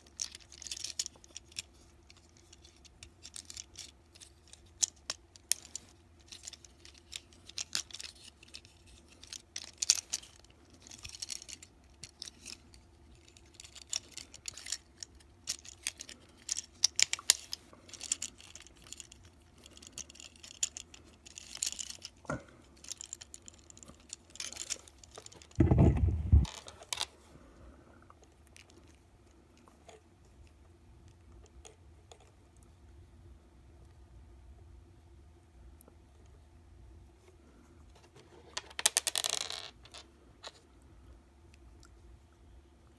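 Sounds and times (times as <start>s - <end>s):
plastic toy clicks and rattles: 0.0s - 27.1s.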